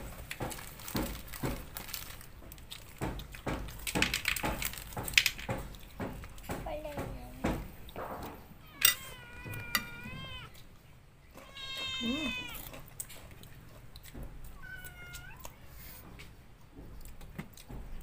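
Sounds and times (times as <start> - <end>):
cat meowing: 8.6 - 10.7, 11.3 - 12.8, 14.5 - 15.6.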